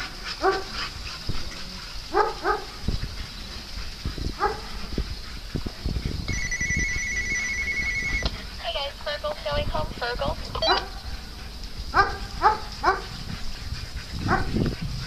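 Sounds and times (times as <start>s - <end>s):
small dog barking: 0.4s - 0.8s, 2.1s - 2.8s, 4.4s - 4.7s, 10.6s - 11.0s, 11.9s - 13.2s
electronic trilling ring: 6.3s - 8.3s.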